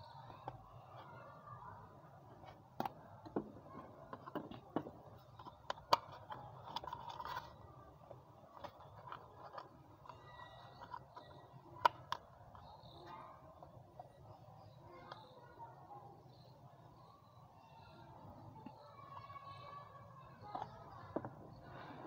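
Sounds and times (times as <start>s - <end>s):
plastic pieces clicking: 4.1s - 13.0s.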